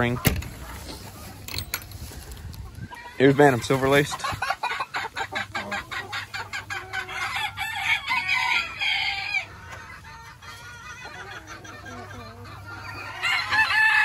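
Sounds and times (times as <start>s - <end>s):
chickens clucking: 0.0s - 14.0s
rooster crowing: 7.2s - 9.5s, 13.2s - 14.0s.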